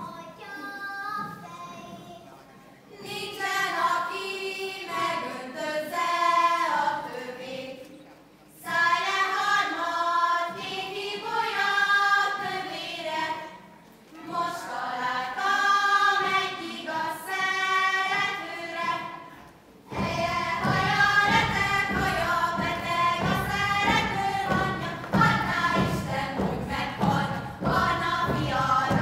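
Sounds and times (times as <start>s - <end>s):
girls singing in unison: 2.9s - 29.0s.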